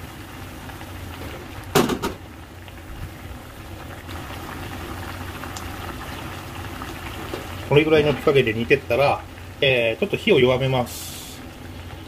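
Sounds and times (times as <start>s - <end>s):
broth bubbling in a pan: 0.0s - 12.0s
utensil knocking on pan: 1.8s - 2.2s.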